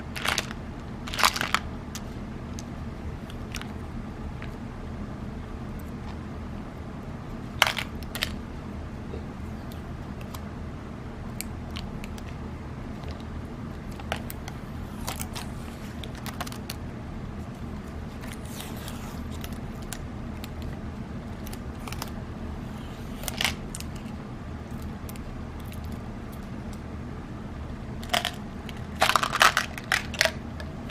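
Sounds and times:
steady low hum: 0.0s - 30.9s.

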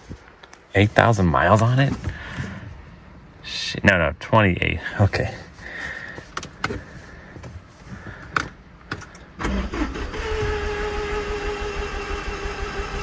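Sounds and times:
car engine starting and idling: 8.3s - 13.0s.

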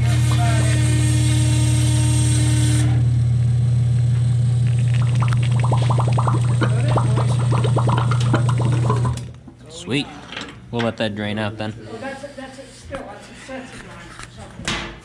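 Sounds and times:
electric pump motor humming: 4.4s - 9.4s
pump gurgling and slurping: 4.6s - 9.4s.

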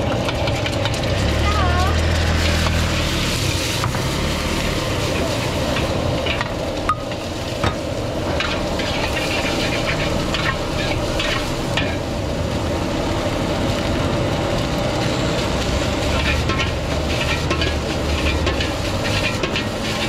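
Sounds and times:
food sizzling in a wok: 0.0s - 20.0s
gas burner running: 0.0s - 20.0s
metal ladle scraping a wok: 2.2s - 12.0s, 16.0s - 20.0s.

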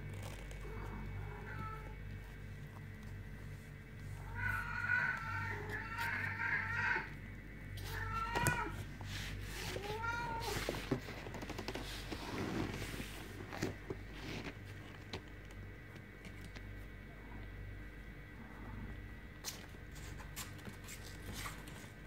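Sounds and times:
kittens mewing: 4.2s - 7.2s, 7.8s - 8.9s
soft rustling: 8.6s - 15.4s.

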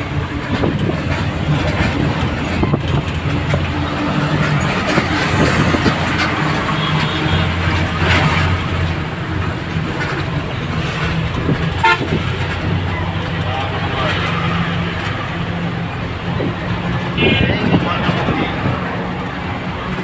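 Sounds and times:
bus engine running: 0.0s - 20.0s
bus horn toot: 6.4s - 8.0s, 11.7s - 12.4s, 17.1s - 17.8s.

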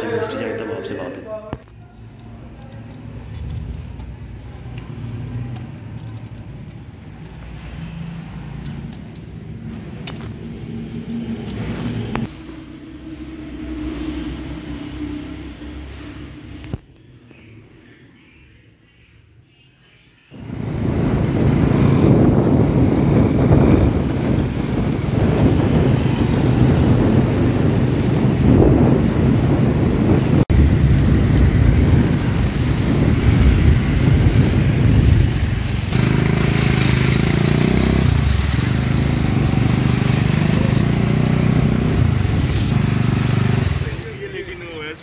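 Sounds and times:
wind rumbling on microphone: 20.4s - 43.9s
motorcycle engine running: 20.4s - 44.1s.

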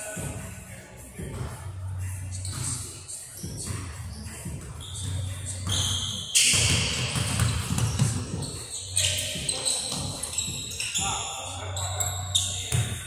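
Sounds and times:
basketball bouncing on wooden floor: 6.5s - 8.6s.

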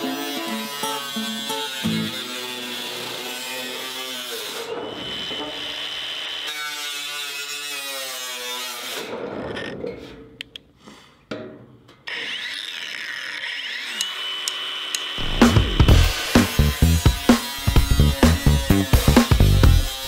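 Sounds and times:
angle grinder cutting metal: 0.0s - 9.7s, 12.0s - 20.0s
music with heavy beat: 15.2s - 20.0s.

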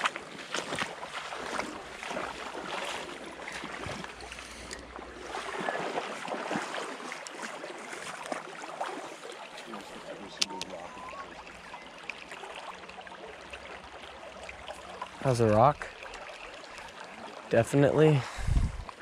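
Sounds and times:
wind buffeting microphone: 18.2s - 18.9s.

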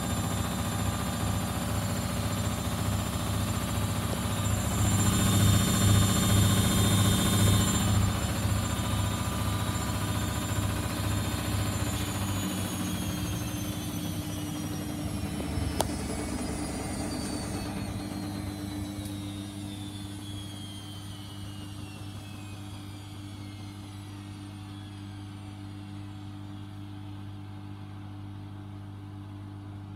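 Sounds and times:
washing machine motor whine falling: 0.0s - 29.9s.

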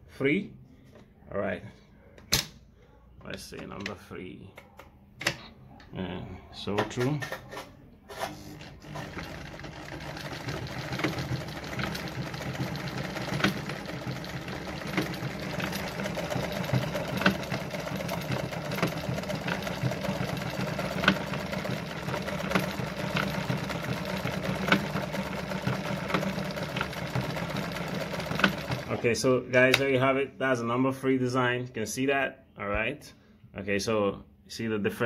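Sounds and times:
sewing machine motor humming: 8.2s - 29.2s
sewing machine needle clicks: 9.0s - 28.9s.

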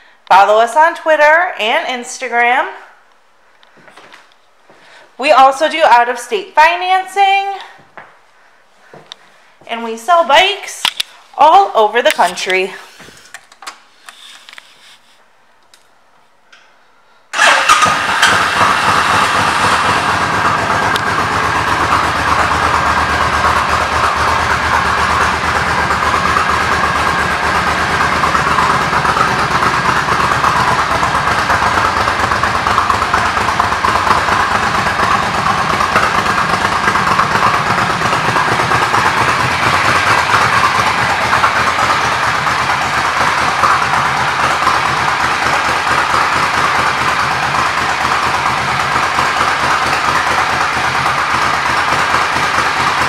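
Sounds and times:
motorcycle engine starting and idling: 17.3s - 53.0s.

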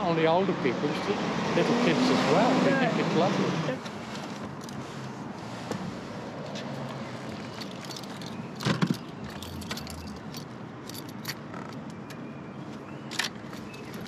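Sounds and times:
keys jangling: 7.3s - 11.8s.

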